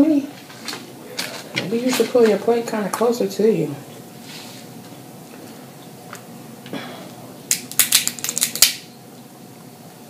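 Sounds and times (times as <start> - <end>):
crab shell crackling clicks: 7.5 - 8.8.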